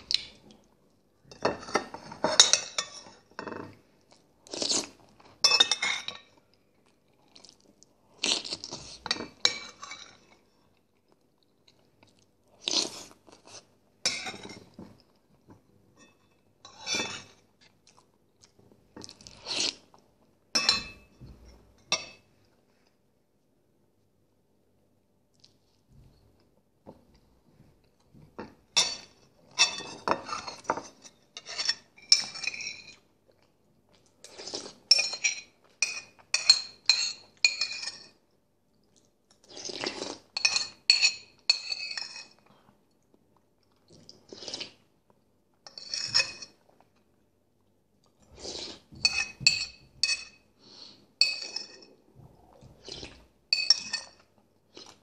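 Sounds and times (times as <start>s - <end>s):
metal spoon clinking on ceramic bowl: 20.6s - 21.1s, 34.9s - 38.1s, 40.4s - 42.4s, 49.0s - 50.4s, 51.2s - 51.8s, 53.5s - 54.2s.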